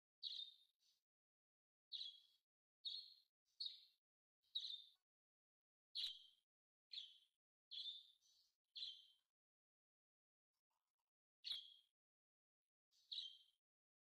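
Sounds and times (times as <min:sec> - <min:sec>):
bird chirping: 0:00.2 - 0:01.0, 0:01.9 - 0:05.1, 0:06.0 - 0:09.3, 0:10.7 - 0:12.0, 0:12.9 - 0:14.0.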